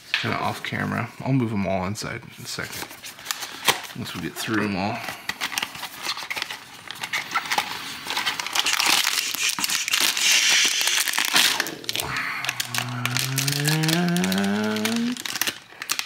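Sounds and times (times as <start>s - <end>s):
foil bag crinkling: 3.2s - 16.0s.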